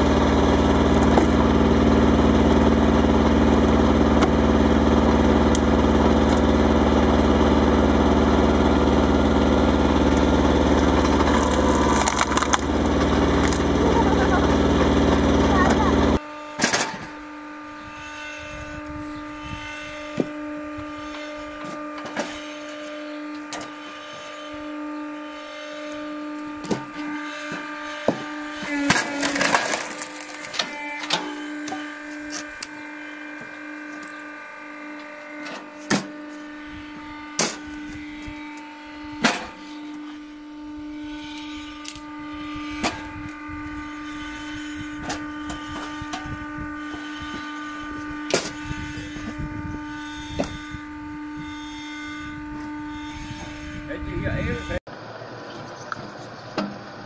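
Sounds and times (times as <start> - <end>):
log splitter motor humming: 0.0 - 57.0
wood cracking and splitting: 10.7 - 13.9, 27.9 - 34.2.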